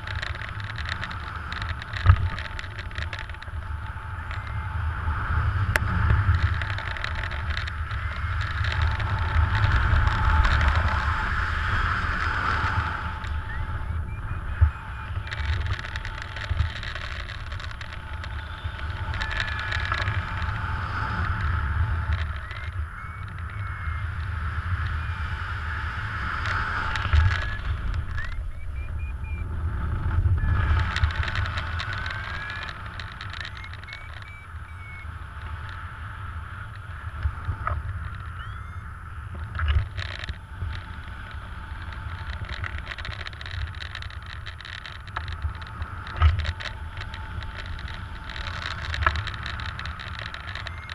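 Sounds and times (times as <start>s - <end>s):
wind buffeting microphone: 0.0s - 50.9s
short chirping tones: 32.0s - 35.2s, 38.2s - 38.9s.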